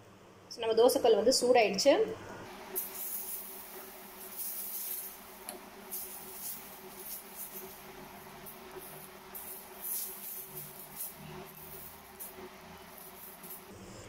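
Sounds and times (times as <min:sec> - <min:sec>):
faint steady hum: 0:00.0 - 0:14.0
ladle scraping batter on griddle: 0:02.7 - 0:13.7.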